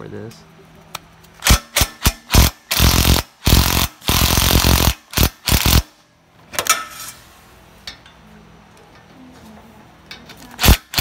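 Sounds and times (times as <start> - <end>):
impact wrench bursts: 1.4 - 6.0, 10.6 - 11.0.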